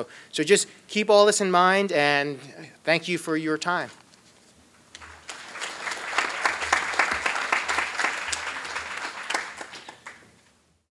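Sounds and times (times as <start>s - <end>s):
audience applauding: 5.0s - 10.3s.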